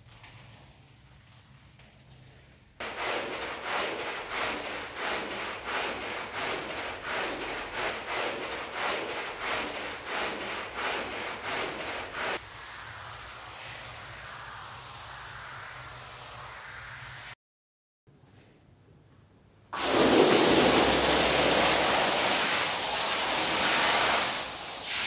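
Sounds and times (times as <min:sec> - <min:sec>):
stiff brush scrubbing rug: 0:02.8 - 0:14.3, 0:19.8 - 0:24.8
steady hiss: 0:12.4 - 0:17.4, 0:19.8 - 0:25.0.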